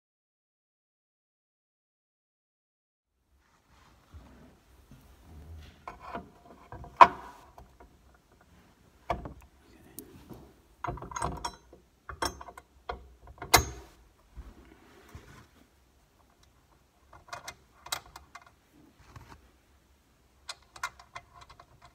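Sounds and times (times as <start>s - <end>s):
metal clicks knocks and scrapes: 5.5s - 14.0s, 20.5s - 21.9s.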